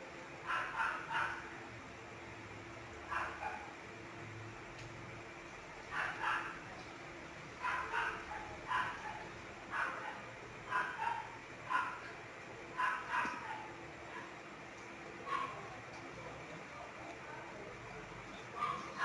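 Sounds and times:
dog barking: 0:00.4 - 0:01.5, 0:03.1 - 0:03.8, 0:05.9 - 0:06.6, 0:07.6 - 0:12.2, 0:12.8 - 0:14.4, 0:15.2 - 0:15.7, 0:18.6 - 0:19.0.

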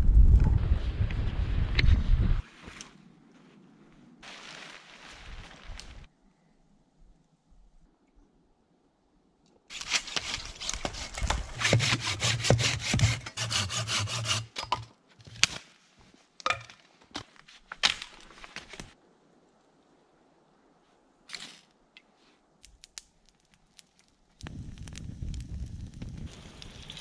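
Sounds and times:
hand saw cutting wood: 0:09.7 - 0:14.6
wood cracking: 0:16.4 - 0:19.0.

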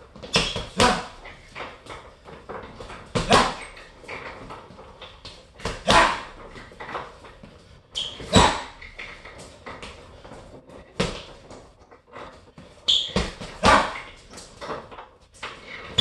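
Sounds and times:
gloves punching heavy bag: 0:00.1 - 0:01.4, 0:02.6 - 0:03.8, 0:05.5 - 0:06.7, 0:08.1 - 0:09.2, 0:13.0 - 0:14.5.

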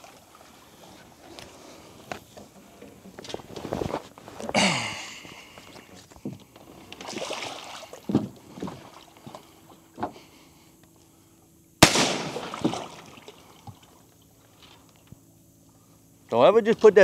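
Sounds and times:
sharp gunshot: 0:11.8 - 0:12.8.

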